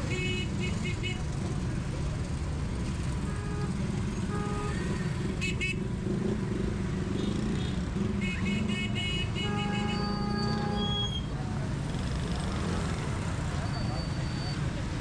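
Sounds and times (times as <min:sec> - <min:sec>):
vehicle engines running: 0:00.0 - 0:15.0
short horn beeps: 0:08.8 - 0:11.2.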